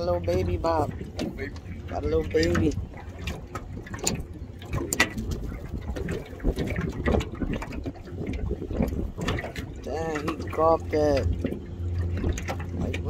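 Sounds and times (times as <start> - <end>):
steady low rumble: 0.0 - 13.0
fishing rod clicks and knocks: 2.4 - 7.8.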